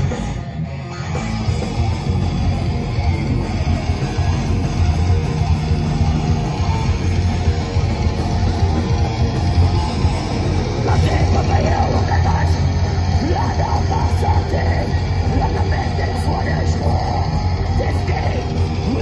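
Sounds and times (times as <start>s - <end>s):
metal band playing loud: 0.0s - 19.0s.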